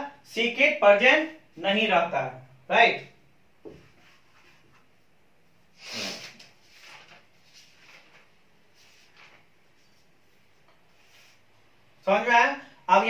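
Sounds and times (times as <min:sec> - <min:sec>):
breath through the nose: 0:05.8 - 0:06.4.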